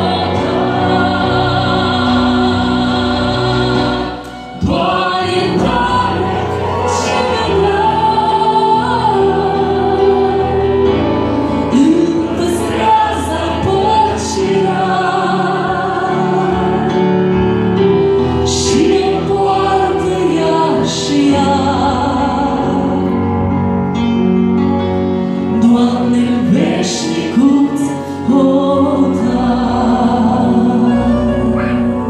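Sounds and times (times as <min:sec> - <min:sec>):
woman singing: 0:00.0 - 0:10.9, 0:18.5 - 0:23.2, 0:25.5 - 0:32.0
musical accompaniment: 0:00.0 - 0:32.0.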